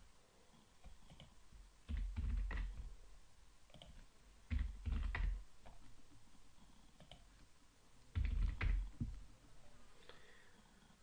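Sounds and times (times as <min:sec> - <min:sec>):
keyboard typing: 0:00.8 - 0:02.9, 0:03.7 - 0:05.9, 0:07.0 - 0:07.3, 0:08.1 - 0:09.2.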